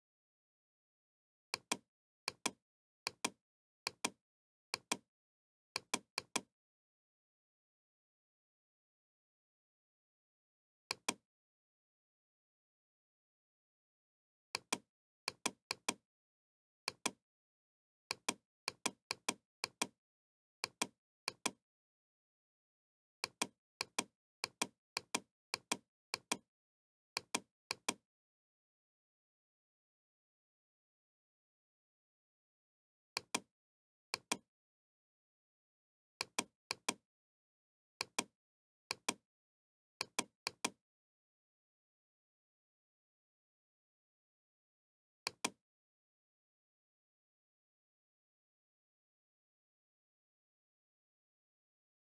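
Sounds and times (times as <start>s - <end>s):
computer mouse double-clicks: 1.6s - 4.2s, 5.8s - 6.5s, 10.9s - 11.2s, 14.6s - 16.0s, 16.9s - 17.2s, 18.1s - 20.0s, 20.6s - 21.6s, 27.2s - 28.0s, 33.2s - 33.5s, 36.2s - 37.0s, 38.0s - 38.3s, 38.9s - 39.2s, 40.0s - 40.8s, 45.3s - 45.6s.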